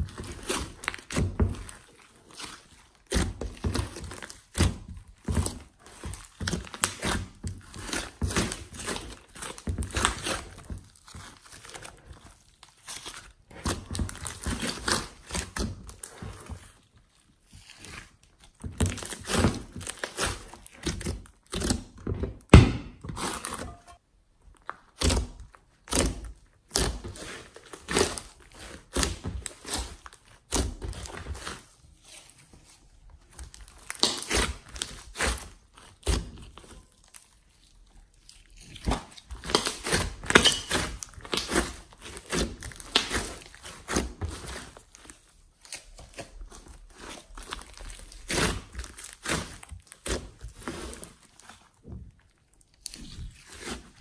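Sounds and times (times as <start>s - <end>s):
slime squishing and popping: 33.3s - 54.0s.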